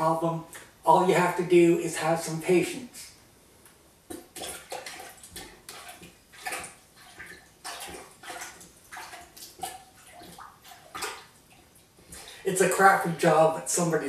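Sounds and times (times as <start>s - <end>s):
plunger sloshing in toilet water: 4.1s - 12.5s.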